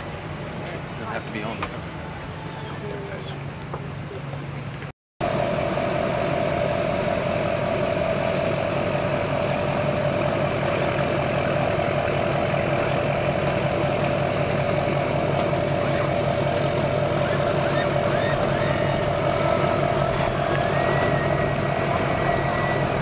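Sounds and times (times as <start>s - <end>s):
engine idling: 5.2s - 23.0s.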